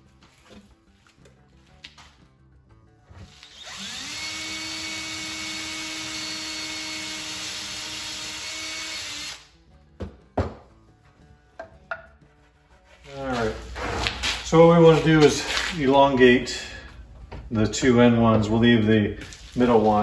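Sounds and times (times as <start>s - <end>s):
power drill boring through wood: 3.2s - 9.5s.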